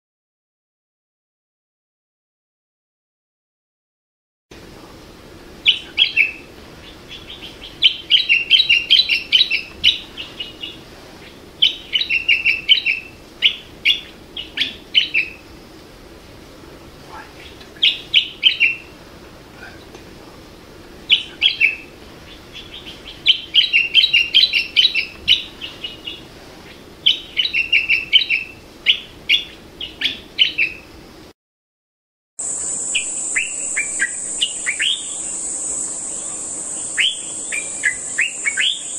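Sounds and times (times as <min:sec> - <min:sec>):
bulbul singing: 0:05.6 - 0:10.8, 0:21.1 - 0:26.2, 0:32.4 - 0:38.9
high insect trill: 0:05.6 - 0:10.8, 0:32.4 - 0:38.9
other bird calls: 0:05.6 - 0:15.5, 0:21.1 - 0:30.8, 0:32.4 - 0:38.9.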